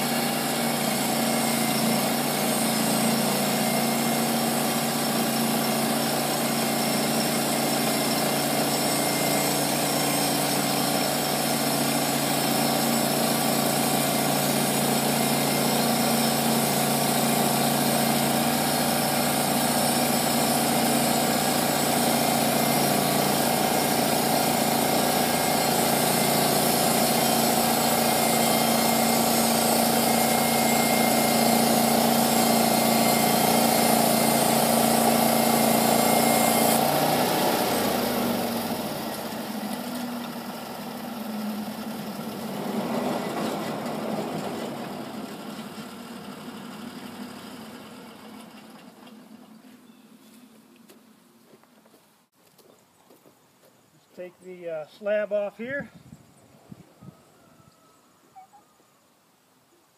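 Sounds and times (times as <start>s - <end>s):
saw blade cutting log: 0.0s - 40.7s
gas engine running: 0.0s - 49.6s.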